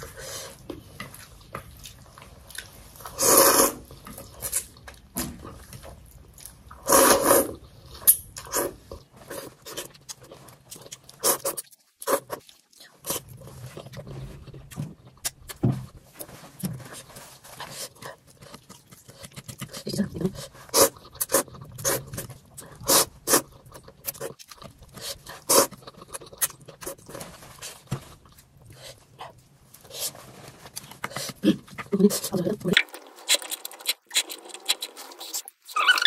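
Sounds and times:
noodle slurping: 0:03.1 - 0:04.6, 0:06.8 - 0:07.6, 0:17.7 - 0:27.8, 0:32.8 - 0:36.0
chewing and lip smacks: 0:09.4 - 0:15.6, 0:17.8 - 0:27.3, 0:32.7 - 0:36.0.

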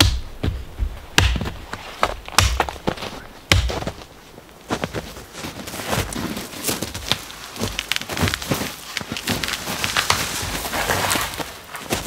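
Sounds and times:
axe chopping log: 0:00.0 - 0:00.6, 0:01.2 - 0:04.0.

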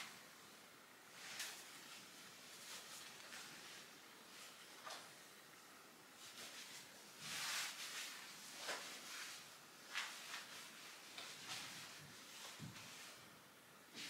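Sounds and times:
clothing fabric rustling: 0:01.1 - 0:05.2, 0:06.2 - 0:14.0.

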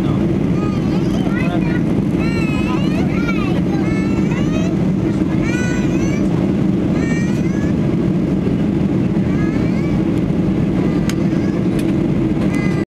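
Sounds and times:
voices: 0:00.0 - 0:07.8
jet engine roar in cabin: 0:00.0 - 0:12.8.

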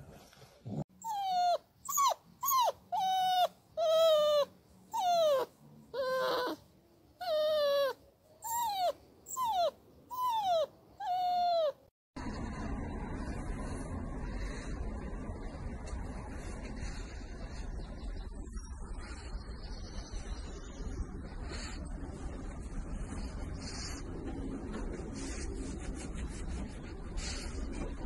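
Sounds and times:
puppy whining: 0:00.7 - 0:11.9.

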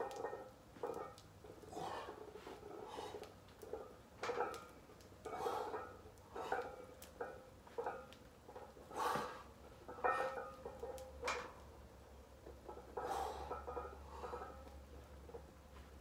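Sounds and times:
man breathing hard: 0:01.7 - 0:02.2, 0:02.8 - 0:03.3, 0:08.9 - 0:09.5, 0:13.0 - 0:14.6
metal weight plates clinking: 0:03.6 - 0:11.6, 0:12.6 - 0:15.5.

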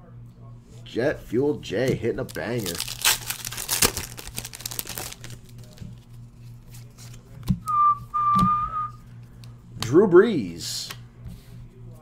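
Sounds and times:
foil wrapper crinkling and tearing: 0:02.2 - 0:06.2.

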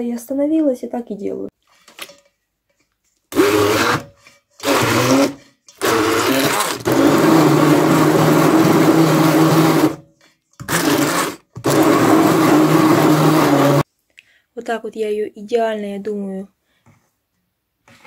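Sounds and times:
immersion blender running: 0:03.3 - 0:10.0, 0:10.6 - 0:13.8.

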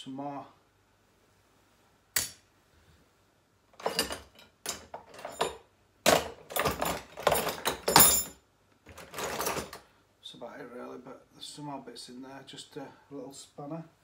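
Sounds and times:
hand tools clattering in tool box: 0:03.8 - 0:09.8.

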